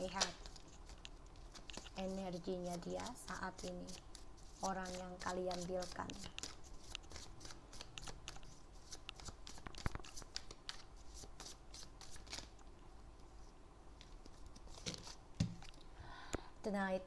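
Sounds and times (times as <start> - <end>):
cards being shuffled: 0.0 - 12.6, 14.0 - 15.7.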